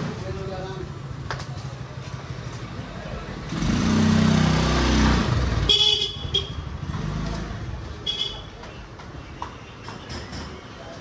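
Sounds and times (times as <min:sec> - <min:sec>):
motorbike passing: 0:01.9 - 0:08.5.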